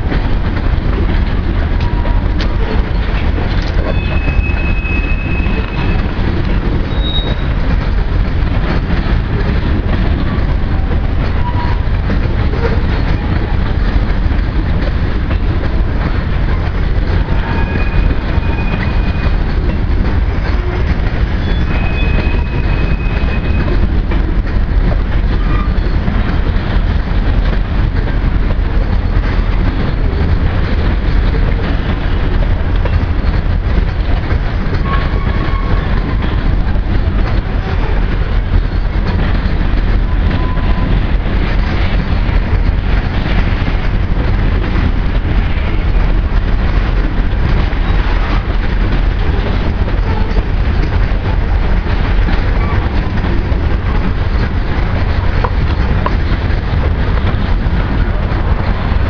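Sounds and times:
clickety-clack over rail joints: 0:00.0 - 0:59.0
train wheels rumbling on rail: 0:00.0 - 0:59.0
faint wheel squeals: 0:06.8 - 0:07.5.

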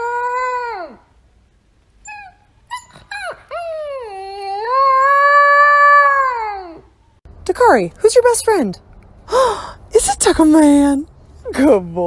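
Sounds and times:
puppy howling: 0:00.0 - 0:01.0, 0:02.0 - 0:06.9
puppy yipping: 0:02.0 - 0:04.1.

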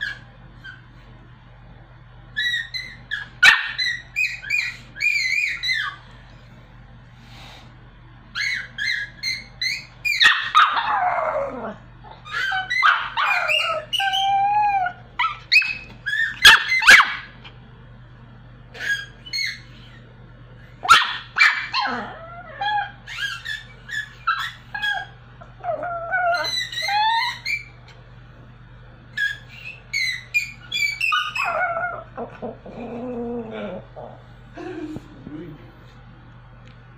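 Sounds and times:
dog yipping and howling: 0:00.0 - 0:00.9, 0:02.3 - 0:06.0, 0:08.3 - 0:17.5, 0:18.8 - 0:20.0, 0:20.8 - 0:27.9, 0:29.2 - 0:34.2.

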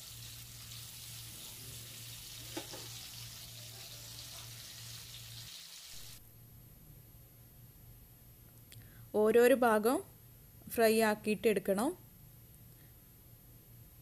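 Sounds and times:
squid sizzling in oil: 0:00.0 - 0:06.2.

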